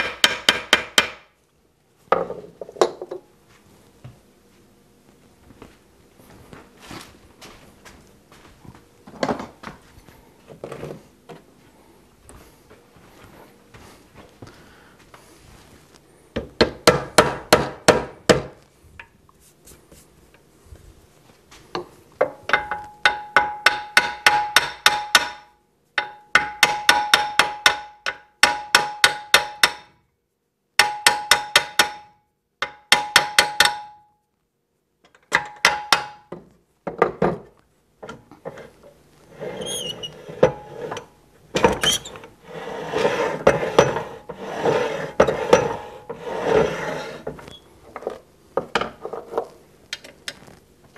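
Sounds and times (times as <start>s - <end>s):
hammer tapping on metal: 0.0s - 1.3s, 21.8s - 30.0s, 30.8s - 34.0s.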